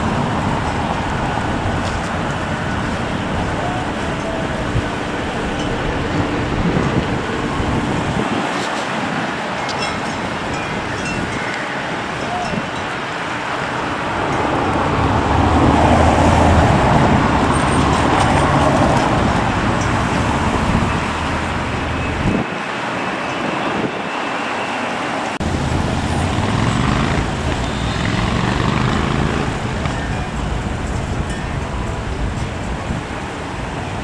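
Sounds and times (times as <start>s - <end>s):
passing vehicles: 0.0s - 34.0s.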